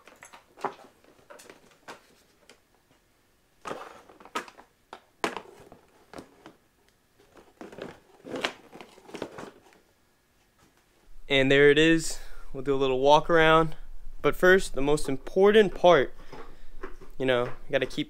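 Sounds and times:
plastic parts clicking and knocking: 3.6 - 6.6.

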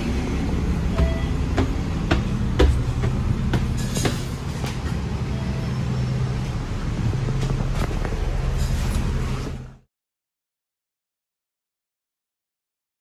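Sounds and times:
bus engine droning: 0.0 - 9.9.

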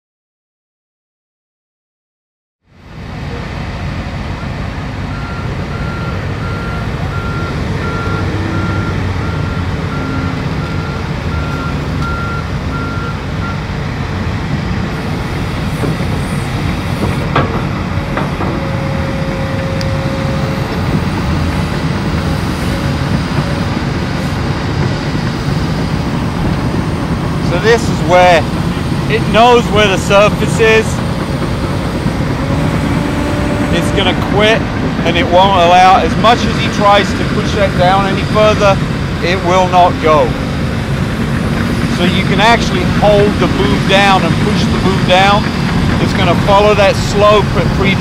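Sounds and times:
excavator diesel engine: 2.7 - 48.0
backup alarm beeping: 4.4 - 13.6.

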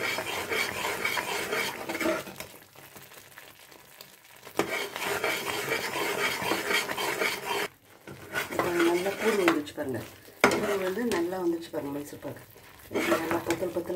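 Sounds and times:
ladle scraping a metal pan: 0.0 - 2.4, 4.6 - 11.3, 12.6 - 13.8
batter frying with a sizzle: 0.0 - 13.9.

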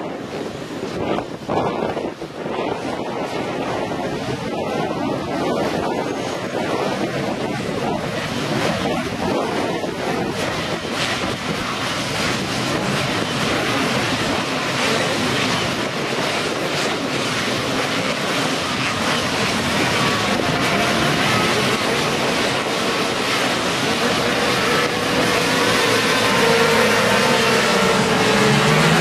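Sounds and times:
wind noise on microphone: 0.0 - 29.0.

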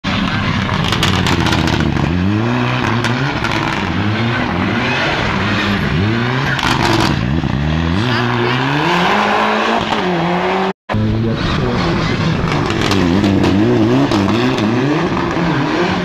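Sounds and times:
car engine revving: 0.1 - 16.0.

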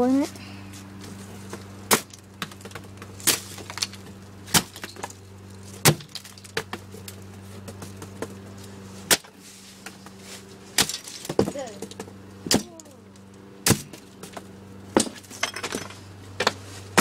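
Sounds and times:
steady low hum: 0.0 - 17.0
lampshade smashing against boards: 1.9 - 5.1, 5.8 - 6.7, 10.7 - 12.8, 15.0 - 17.0.

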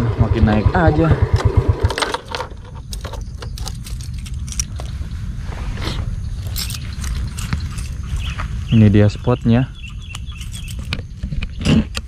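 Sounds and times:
keys jangling: 1.9 - 5.0, 6.4 - 8.4, 9.8 - 11.2
steady low rumble: 2.6 - 11.2.

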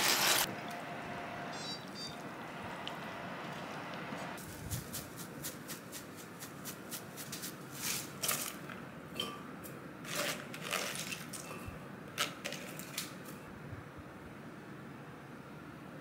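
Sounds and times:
cabbage rustling: 0.0 - 0.5, 4.4 - 8.7, 10.0 - 11.6.

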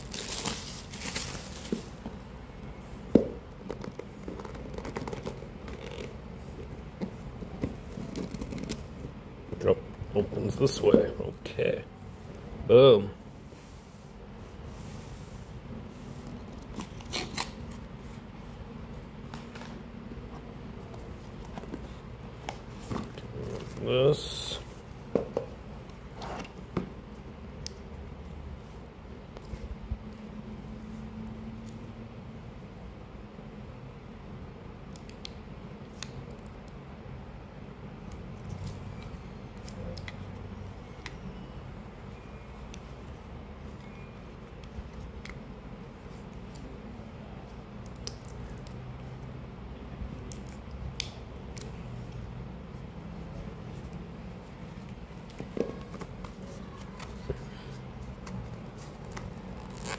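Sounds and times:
plastic and cardboard crinkling: 0.0 - 2.2
low background hum: 0.0 - 59.9.

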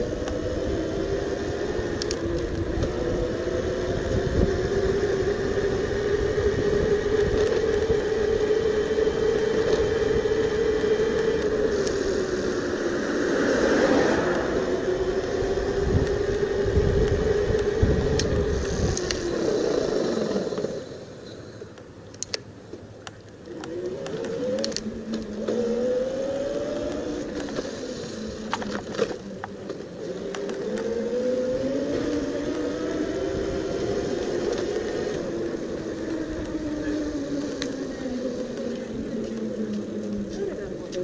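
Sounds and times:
electric bike motor whining: 0.0 - 21.8, 23.4 - 41.0
sharp clicks: 21.7 - 25.6.

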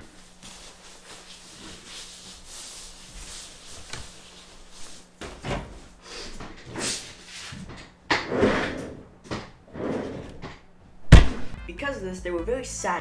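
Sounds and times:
cloth rustling: 0.0 - 5.4
thump into padded chair: 11.1 - 11.6.

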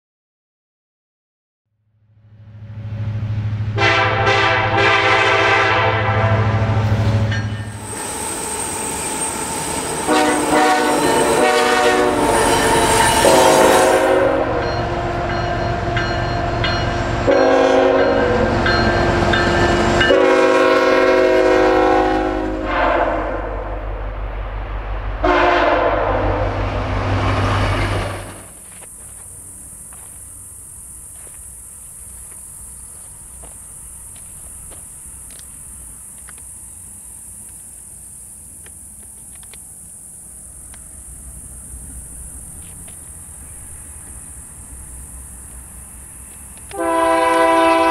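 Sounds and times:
locomotive engine rumble: 2.3 - 47.9
locomotive air horn blasts: 3.8 - 6.8, 10.0 - 16.0, 17.2 - 19.3, 20.0 - 23.8, 25.2 - 26.7, 46.7 - 47.9
insect chirring: 7.4 - 17.2, 28.4 - 46.8.

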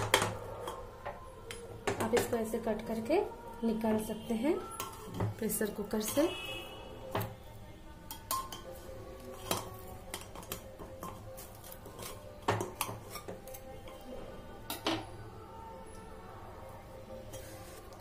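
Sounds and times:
knife clinking on metal pot: 8.1 - 14.0.

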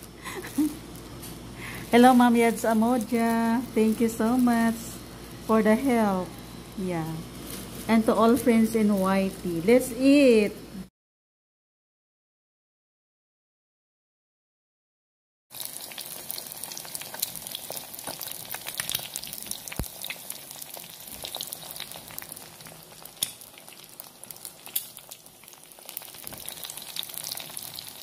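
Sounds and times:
egg frying in oil: 15.5 - 28.0.

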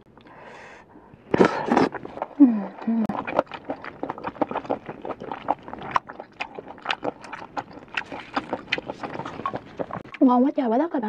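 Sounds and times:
mouth chewing wetly: 1.3 - 10.3.

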